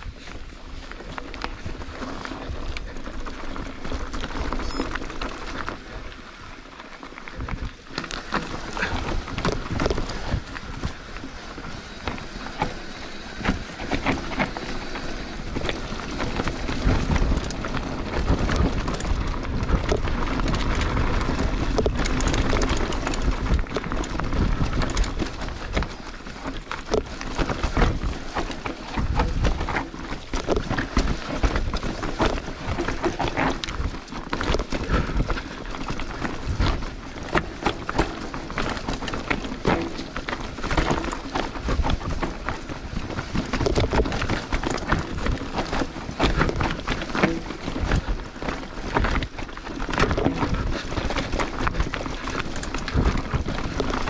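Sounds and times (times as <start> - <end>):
bike rattling and knocking: 0.0 - 54.0
bike tyres crunching over stones: 0.0 - 54.0.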